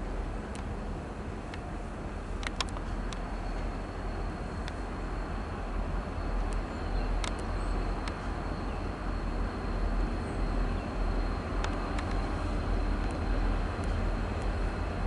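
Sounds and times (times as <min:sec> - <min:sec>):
distant diesel locomotive rumble: 0:00.0 - 0:15.0
faint clicks: 0:02.4 - 0:03.7, 0:04.6 - 0:04.8, 0:07.2 - 0:08.3, 0:11.6 - 0:12.3, 0:13.0 - 0:14.5.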